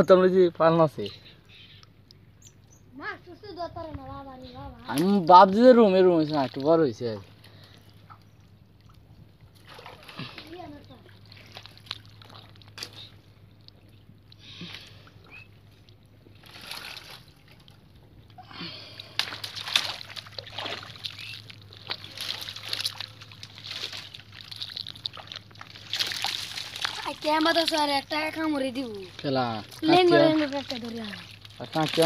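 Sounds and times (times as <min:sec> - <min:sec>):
hands splashing in muddy water: 0:14.6 - 0:17.8, 0:18.6 - 0:27.8, 0:29.7 - 0:32.0.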